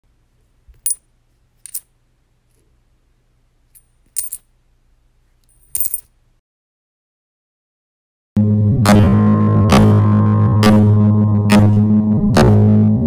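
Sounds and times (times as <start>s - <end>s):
faint low hum: 0.1s - 6.4s
coins dropping and clinking: 0.8s - 1.0s, 1.6s - 1.9s, 3.7s - 4.5s, 5.4s - 6.1s.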